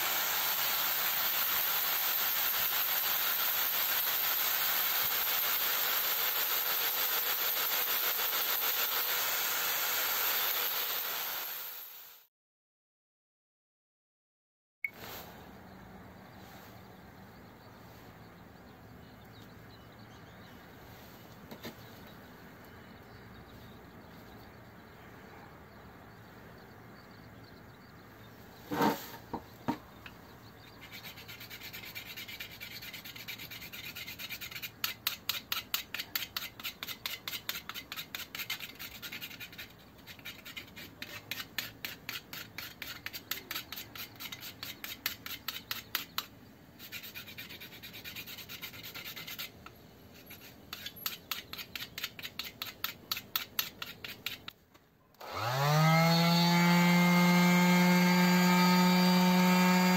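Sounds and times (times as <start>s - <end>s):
wood scraping on sandpaper: 28.6s - 29.8s, 30.7s - 54.6s
electric sander motor whining: 55.2s - 59.9s.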